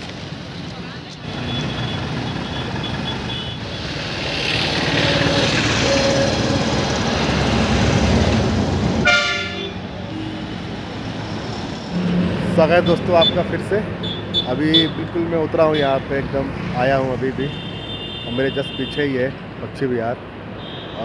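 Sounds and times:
engine and road rumble: 0.0s - 21.0s
vehicle horn toot: 1.5s - 3.8s, 9.0s - 10.5s, 17.5s - 19.0s.

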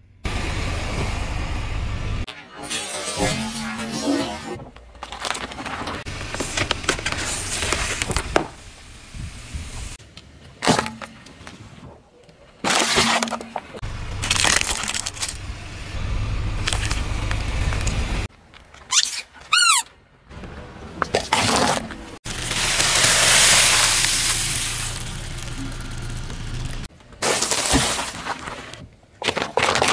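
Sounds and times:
objects crushed under car tyre: 14.1s - 15.4s, 22.3s - 28.5s.

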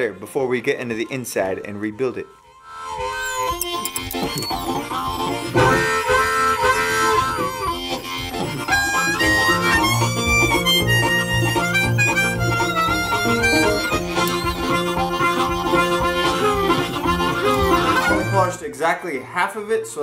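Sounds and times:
harmonica playing chords: 0.0s - 18.7s
pulsing bass line: 3.0s - 18.5s.

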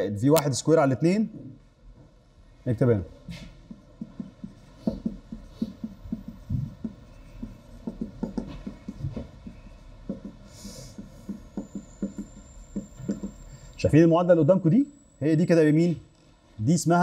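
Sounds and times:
writing strokes on a board: 3.3s - 13.7s.

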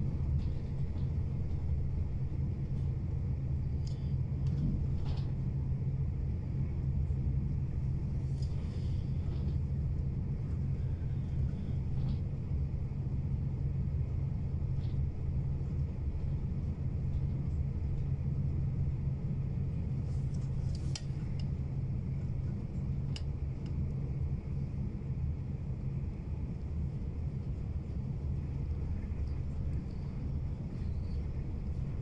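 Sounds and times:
train rumbling inside carriage: 0.0s - 32.0s.

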